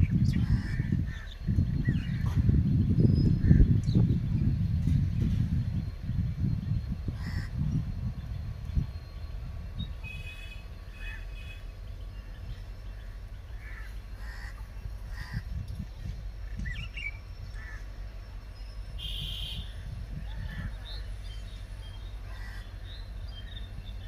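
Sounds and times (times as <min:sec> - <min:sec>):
small birds chirping: 0:00.0 - 0:24.0
steady low rumble: 0:00.0 - 0:24.0
crows cawing: 0:07.2 - 0:07.5, 0:13.6 - 0:15.4, 0:17.6 - 0:17.9, 0:22.2 - 0:22.8.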